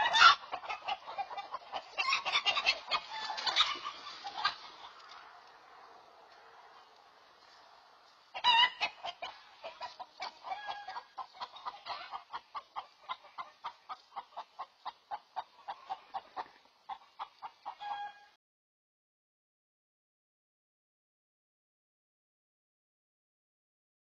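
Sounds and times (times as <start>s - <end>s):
chicken squawking: 0.0s - 5.0s, 8.3s - 17.0s
hen clucking rapidly: 0.0s - 5.1s, 8.3s - 18.2s.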